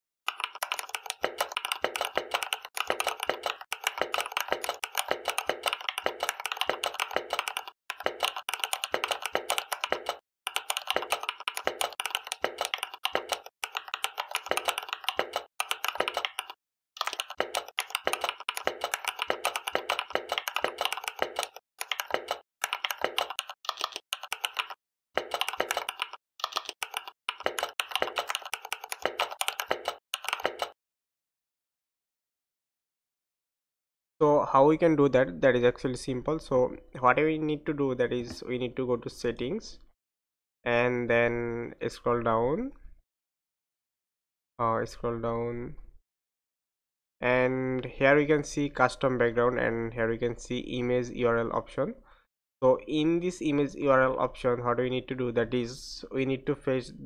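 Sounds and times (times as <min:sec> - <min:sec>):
fast typing on keyboard: 0:00.3 - 0:30.8.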